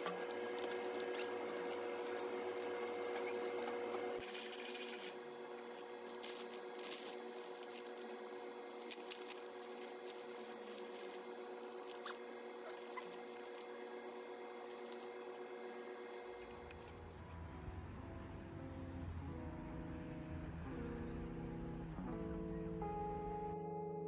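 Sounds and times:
machine hum: 0.0 - 24.0
paper bag crinkling: 6.0 - 13.8
plastic wrapper crinkling: 6.0 - 13.8, 14.7 - 15.2.

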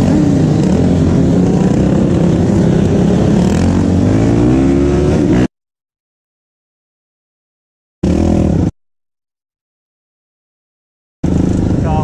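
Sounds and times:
motorcycle engines revving: 0.0 - 5.5, 8.0 - 8.7, 11.2 - 12.0.

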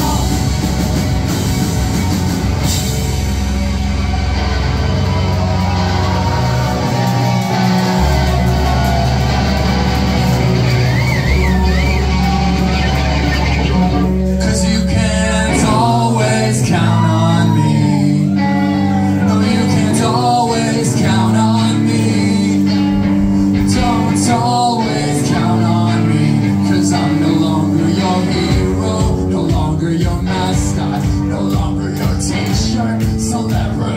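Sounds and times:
man singing: 0.0 - 0.4, 14.2 - 33.9
live rock band playing: 0.0 - 33.9.

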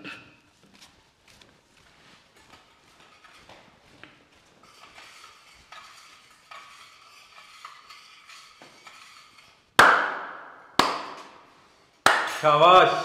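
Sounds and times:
spoon stirring in a glass: 4.6 - 9.6.

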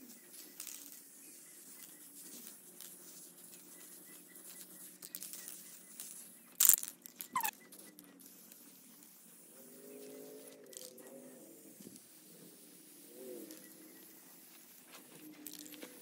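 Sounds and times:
spray paint can hissing: 0.3 - 9.5, 11.7 - 14.8.

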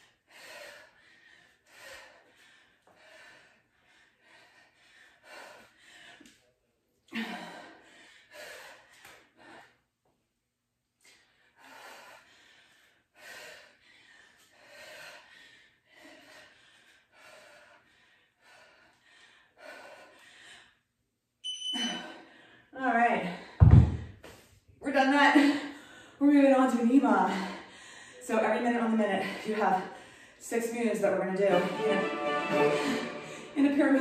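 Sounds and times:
woman breathing hard: 0.0 - 6.4, 7.1 - 9.8, 11.0 - 20.9, 21.8 - 24.5, 25.4 - 26.2, 27.1 - 28.2, 29.1 - 30.5
short high timer beep: 21.5 - 22.0.

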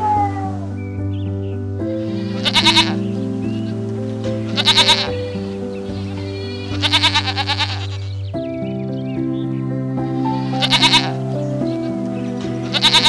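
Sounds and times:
background music: 0.0 - 13.0
goat bleating: 2.2 - 3.0, 4.5 - 5.1, 6.6 - 8.0, 10.6 - 11.2.

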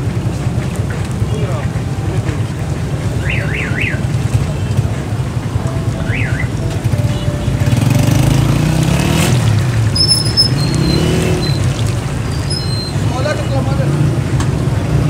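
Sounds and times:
vehicle engine rumbling: 0.0 - 15.0
short high squeaks: 10.0 - 11.7, 12.3 - 13.5.

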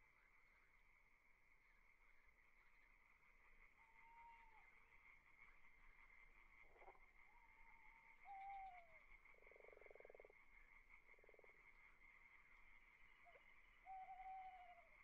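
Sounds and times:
whistled animal call: 3.6 - 5.0, 7.2 - 10.3, 13.2 - 15.0.

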